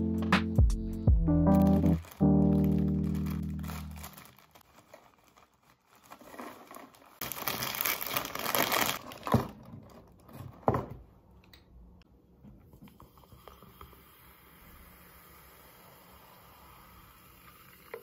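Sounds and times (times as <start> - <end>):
crisp packet crinkling: 1.4 - 10.4.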